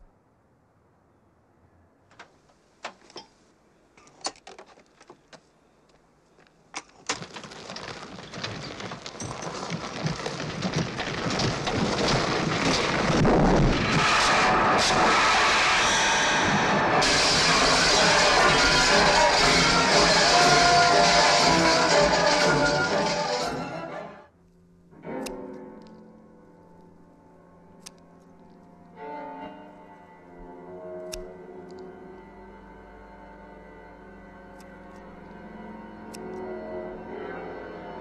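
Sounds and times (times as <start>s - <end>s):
rumbling din: 7.0s - 24.0s.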